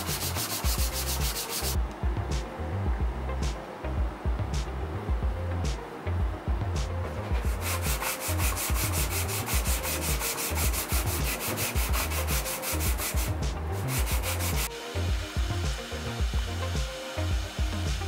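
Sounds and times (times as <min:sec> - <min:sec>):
wood rubbed on sandpaper: 0:00.0 - 0:01.8, 0:07.4 - 0:14.7.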